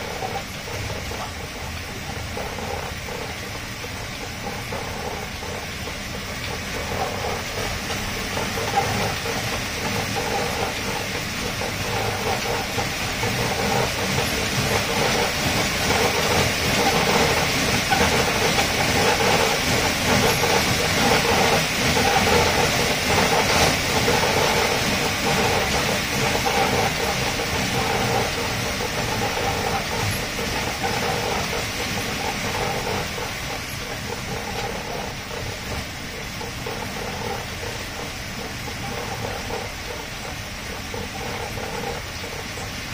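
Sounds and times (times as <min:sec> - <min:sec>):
treadmill rumble and rattle: 0:00.0 - 0:42.9.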